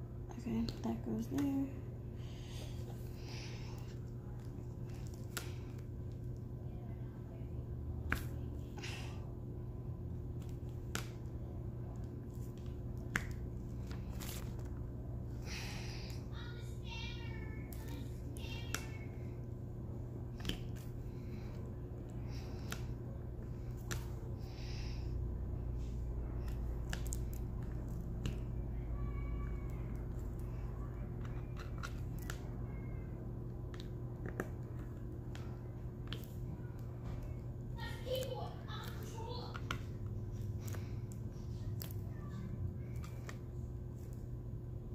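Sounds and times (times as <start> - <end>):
steady low hum: 0.0 - 44.9.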